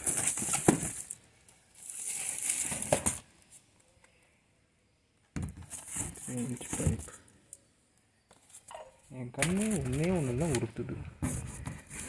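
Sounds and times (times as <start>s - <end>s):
crinkling of shrink-wrapped boxes: 0.0s - 3.6s, 9.4s - 12.0s.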